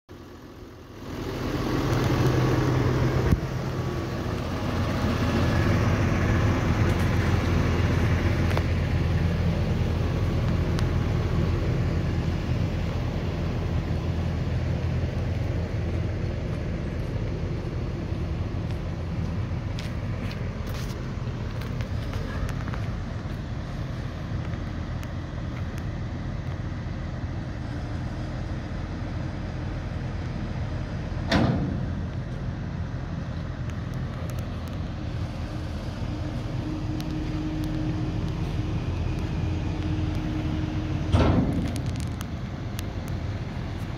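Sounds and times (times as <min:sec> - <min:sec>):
tractor diesel engine humming: 0:00.1 - 0:43.9.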